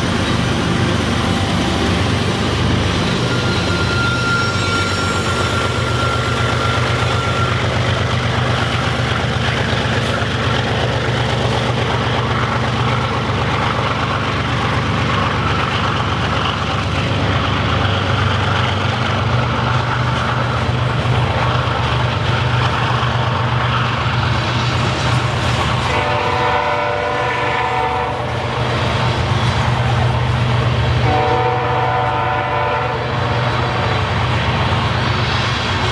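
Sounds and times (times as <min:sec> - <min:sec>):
freight train rumbling past: 0:00.0 - 0:35.9
train horn: 0:03.1 - 0:07.4, 0:25.8 - 0:28.6, 0:31.0 - 0:34.1.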